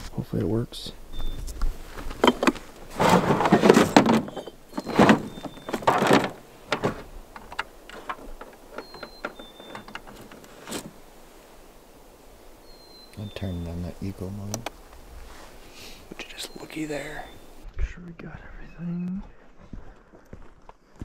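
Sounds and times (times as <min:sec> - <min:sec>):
gear rustling and scraping: 0:01.5 - 0:11.0
knocks and clicks: 0:02.2 - 0:10.9.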